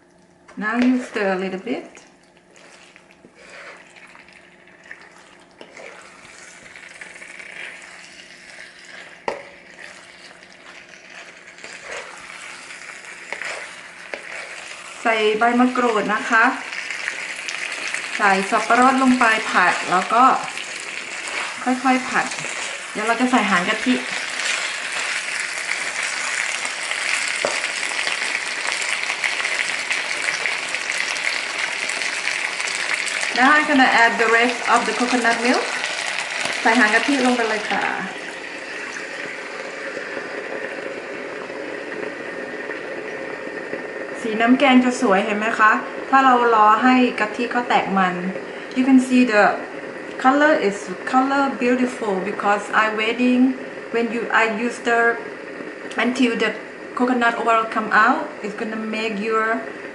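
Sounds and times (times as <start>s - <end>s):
light sizzle: 0.0s - 59.9s
spatula scraping wok: 0.8s - 1.3s, 2.5s - 3.9s, 5.6s - 38.1s.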